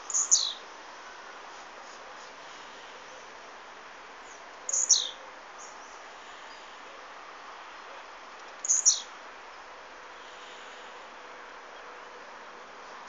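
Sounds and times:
bird calling: 0.0s - 0.6s, 4.7s - 5.2s
steady background noise: 0.0s - 13.0s.

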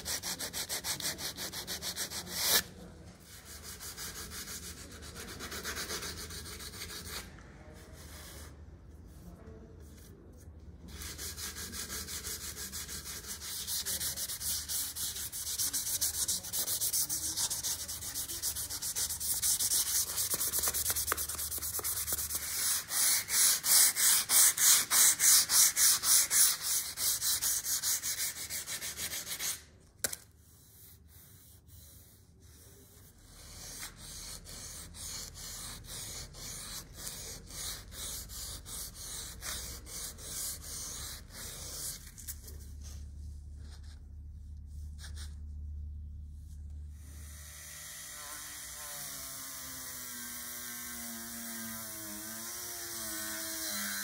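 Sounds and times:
hand sanding metal: 11.0s - 29.7s, 32.8s - 42.0s.

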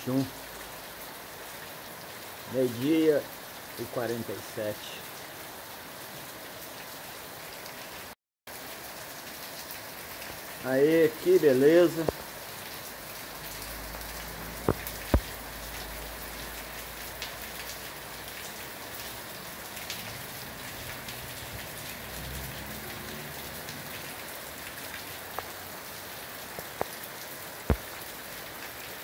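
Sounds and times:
heavy rain falling: 0.0s - 29.0s
close raindrop taps: 11.9s - 12.3s, 14.6s - 15.4s, 25.3s - 25.6s, 26.5s - 27.0s, 27.6s - 28.1s.

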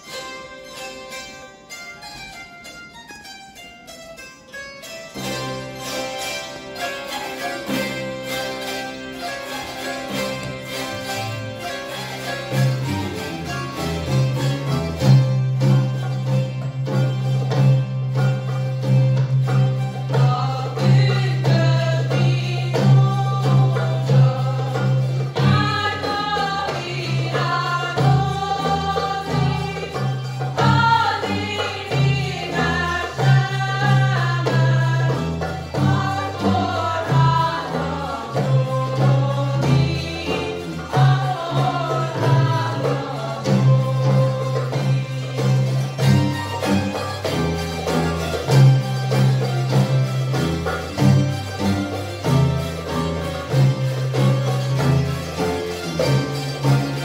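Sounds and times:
zither ensemble playing folk tune: 0.0s - 57.0s
voices singing: 20.0s - 46.4s.

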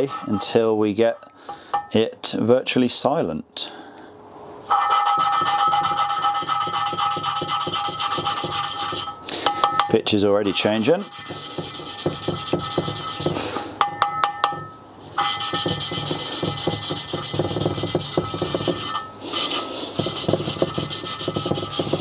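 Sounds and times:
valve grinding gritty rasp: 4.7s - 9.2s, 10.5s - 13.6s, 15.1s - 22.0s.

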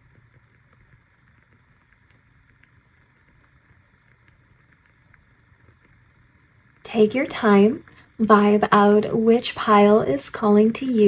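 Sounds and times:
faint ticks: 0.0s - 6.8s
low steady hum: 0.0s - 11.0s.

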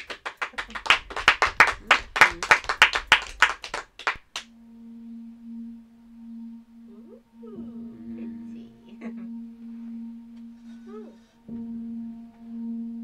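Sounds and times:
people clapping hands: 0.0s - 4.5s
low drone tone: 0.4s - 13.0s.

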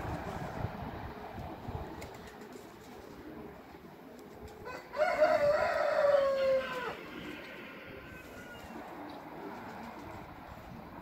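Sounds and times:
rooster crowing: 4.6s - 8.7s.

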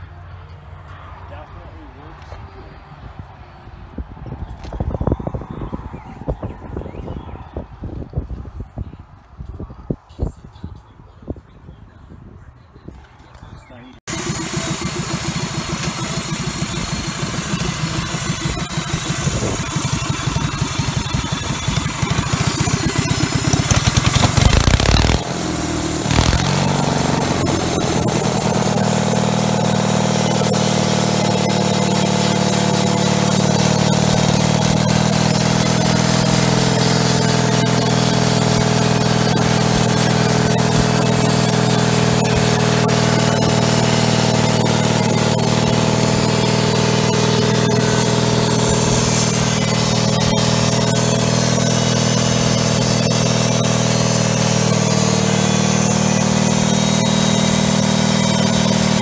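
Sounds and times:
sawmill engine running: 14.1s - 59.0s.

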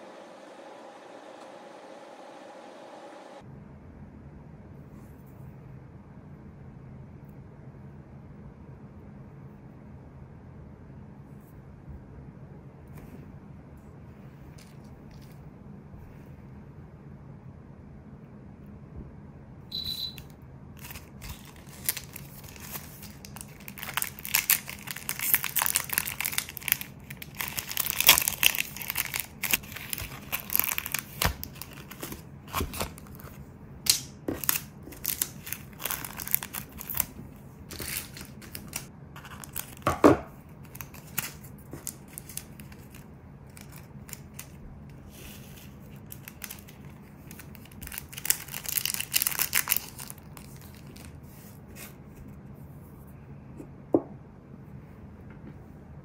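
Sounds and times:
plastic packaging crinkling: 20.8s - 52.0s.

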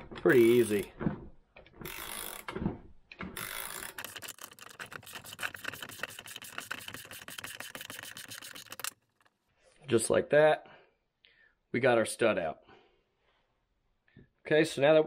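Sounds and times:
socket ratchet clicking: 3.4s - 9.3s.

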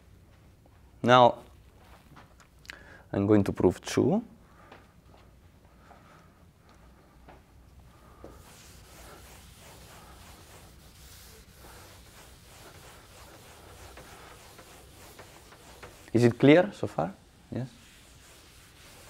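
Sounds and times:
eraser rubbing on chalkboard: 8.3s - 19.0s.

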